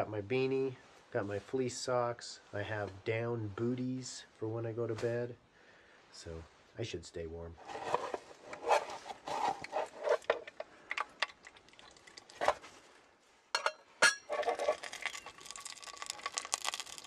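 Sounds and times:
spatula scraping steel pot: 0:07.6 - 0:10.6, 0:14.0 - 0:15.3.

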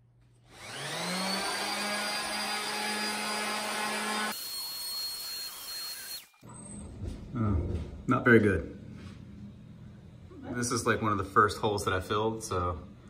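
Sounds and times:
orbital sander whining: 0:00.5 - 0:06.3.

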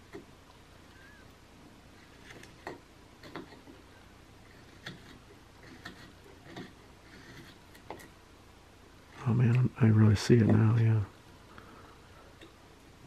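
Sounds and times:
knife blade ticking and scraping wood: 0:02.1 - 0:03.8, 0:04.4 - 0:08.2.

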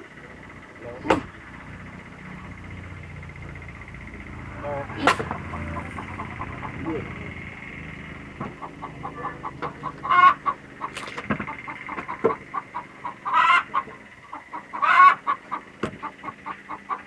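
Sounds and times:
chickens clucking: 0:00.0 - 0:17.0
chicken squawking calls: 0:08.6 - 0:17.0.

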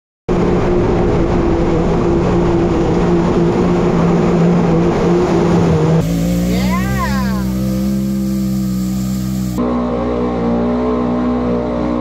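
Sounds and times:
engine revving high: 0:04.6 - 0:12.0
mud and water spraying: 0:06.0 - 0:09.6.

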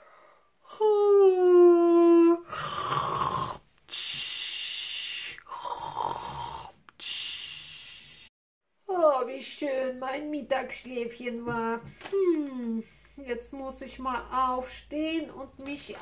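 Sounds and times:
snoring: 0:02.5 - 0:03.6, 0:04.2 - 0:06.8.

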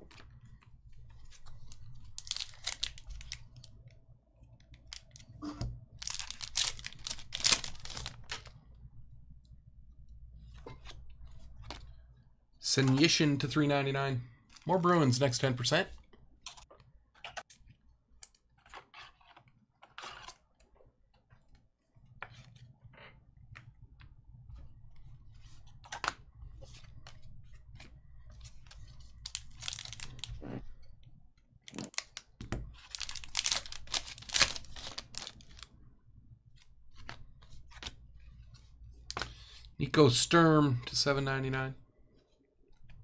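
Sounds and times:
wrapper crinkles and card clicks: 0:01.3 - 0:03.7, 0:05.9 - 0:08.6, 0:28.8 - 0:30.4, 0:31.7 - 0:35.7
wrapper tearing and rustling: 0:01.6 - 0:03.4, 0:05.9 - 0:08.5, 0:29.2 - 0:30.4, 0:31.7 - 0:35.7.

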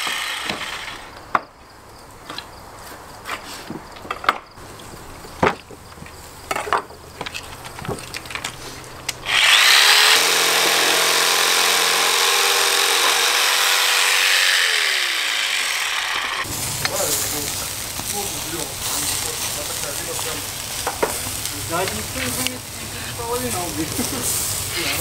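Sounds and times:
electric jigsaw sawing bone: 0:00.0 - 0:01.2, 0:09.2 - 0:16.5.

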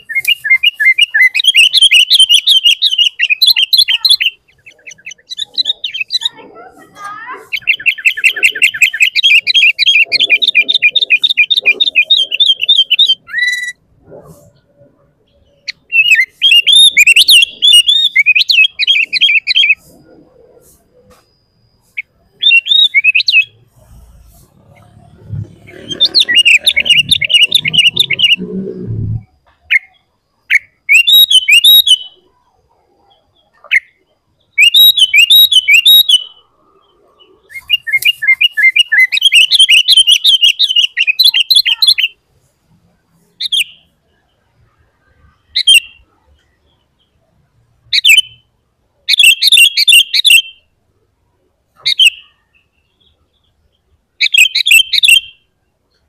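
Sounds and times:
bulbul chattering calls: 0:00.0 - 0:14.6, 0:15.2 - 0:21.2, 0:21.8 - 0:28.5, 0:54.2 - 0:55.4.

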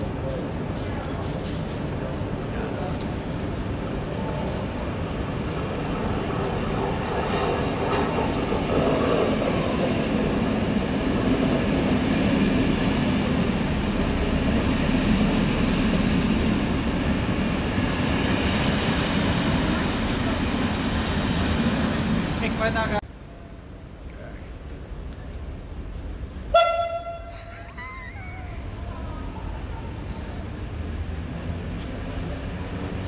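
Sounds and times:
electric train running past: 0:00.0 - 0:23.9.

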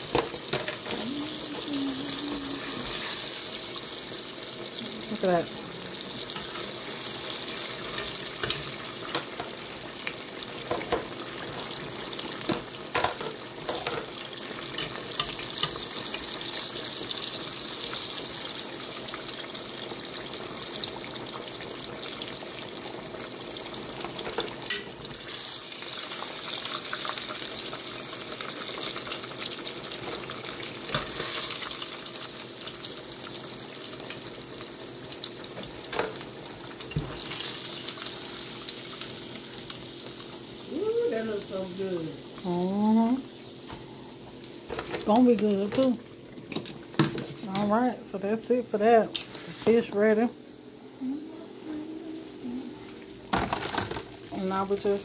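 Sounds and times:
fish deep-frying in oil: 0:00.0 - 0:50.6, 0:53.1 - 0:55.0.

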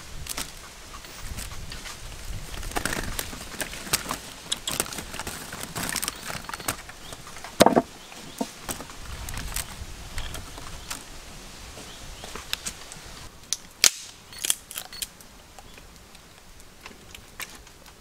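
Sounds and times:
mangoes knocking on a bamboo tray: 0:07.6 - 0:07.9.

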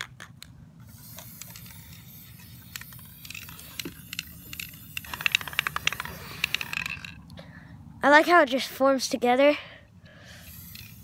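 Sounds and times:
spray paint can hissing: 0:00.8 - 0:07.2, 0:10.4 - 0:11.0.

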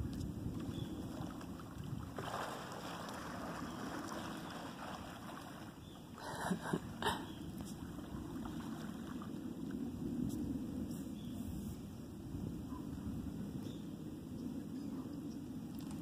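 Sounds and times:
wind buffeting microphone: 0:00.0 - 0:02.6, 0:06.7 - 0:16.0.

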